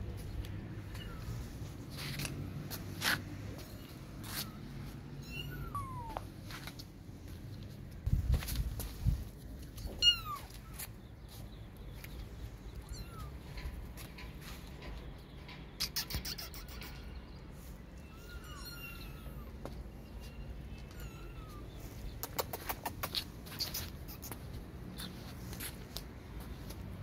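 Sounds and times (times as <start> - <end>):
cats meowing: 3.6 - 6.3, 9.9 - 10.8, 12.7 - 13.6, 18.0 - 19.7, 20.7 - 22.1.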